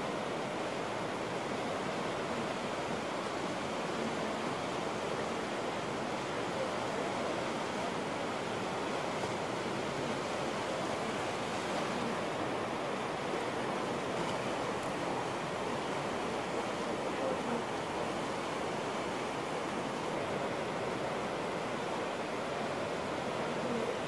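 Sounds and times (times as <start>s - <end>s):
whitewater rushing: 0.0s - 24.0s.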